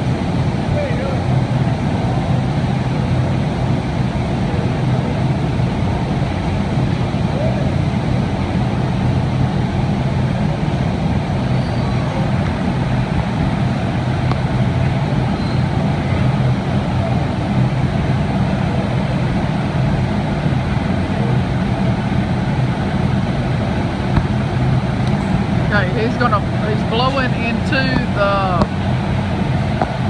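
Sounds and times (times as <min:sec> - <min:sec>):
furnaces roaring: 0:00.0 - 0:30.0.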